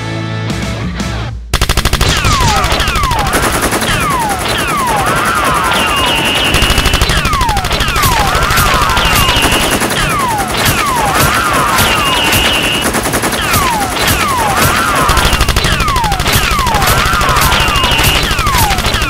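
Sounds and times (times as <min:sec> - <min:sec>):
automatic gunfire: 0:01.6 - 0:19.0
bullets whizzing whistles: 0:03.9 - 0:07.2, 0:07.8 - 0:19.0.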